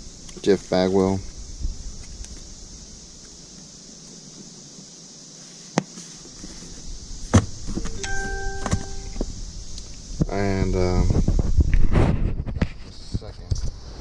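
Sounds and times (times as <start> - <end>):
short steady tone: 8.0 - 9.2
card cases knocking: 8.6 - 9.0.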